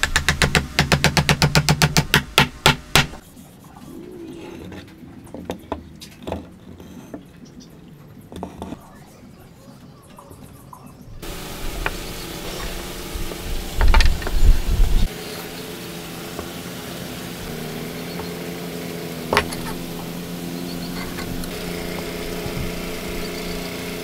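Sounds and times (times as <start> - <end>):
motor running: 11.2 - 24.0
heavy low rumble: 11.6 - 15.1
wooden blocks knocking on workbench: 19.3 - 19.8.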